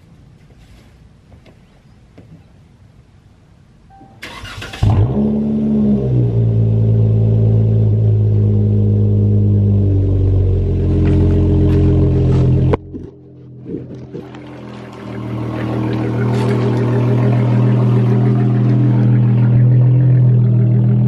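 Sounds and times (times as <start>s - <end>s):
car engine revving and idling: 4.4s - 21.0s.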